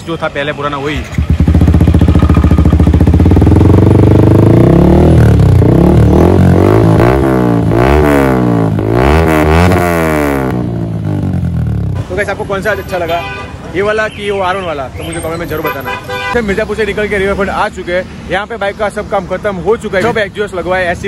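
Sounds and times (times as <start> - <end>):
motorcycle engine revving: 0.8 - 12.2.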